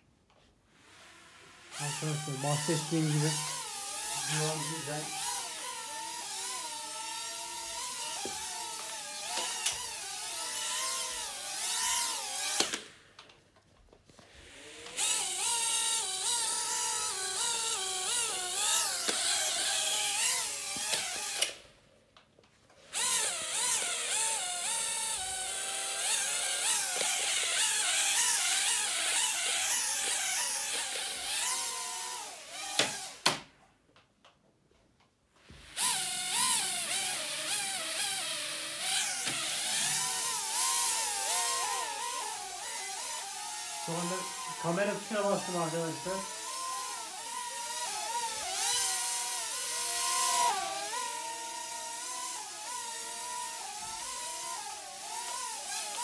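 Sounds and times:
drone propellers whining: 35.8 - 51.4.

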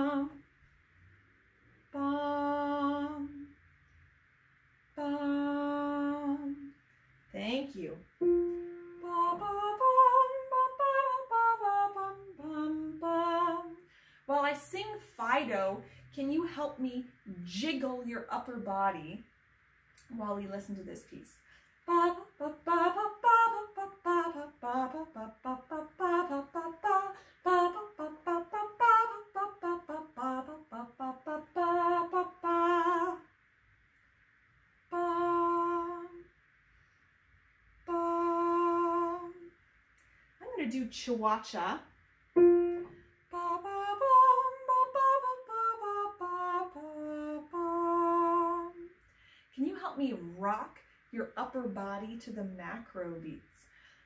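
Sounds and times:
woman singing wordless melody: 0.0 - 0.5, 1.9 - 3.6, 4.9 - 6.8, 7.4 - 19.2, 20.0 - 33.4, 34.8 - 36.4, 37.8 - 39.6, 42.4 - 49.0.

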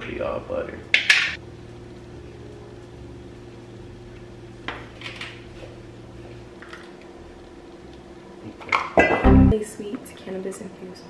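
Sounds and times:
low steady hum: 9.1 - 9.9.

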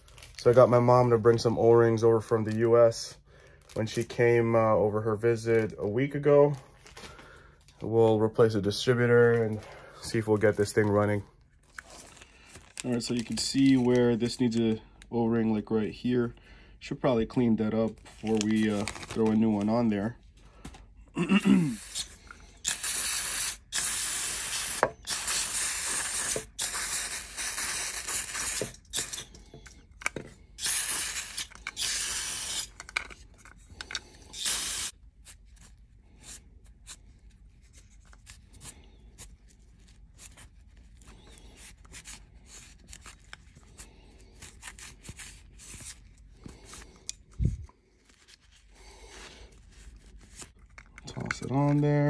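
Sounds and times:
aerosol spray hissing: 22.7 - 29.2, 30.6 - 32.7, 34.3 - 35.0.

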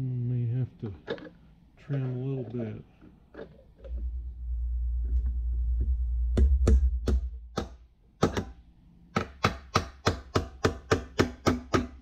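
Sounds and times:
low rumble: 3.9 - 7.4
hammer tapping metal: 6.4 - 12.0.

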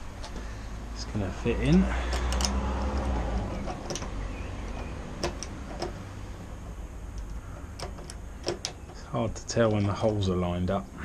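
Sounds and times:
low steady hum: 0.0 - 11.0
bolt clicking and tapping: 1.6 - 6.0, 7.1 - 9.0.

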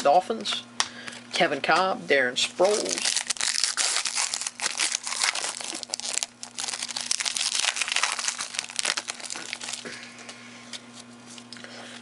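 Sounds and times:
foil wrapper tearing and crinkling: 2.6 - 10.0.

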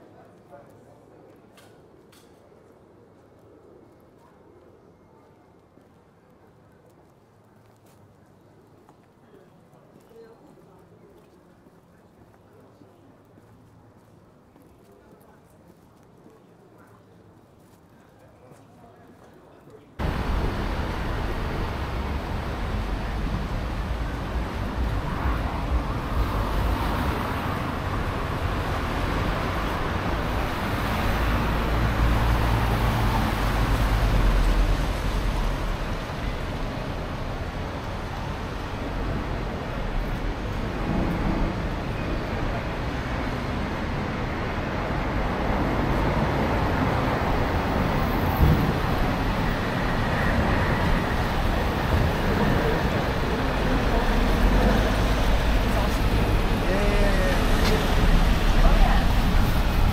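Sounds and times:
traffic passing: 20.0 - 59.9.

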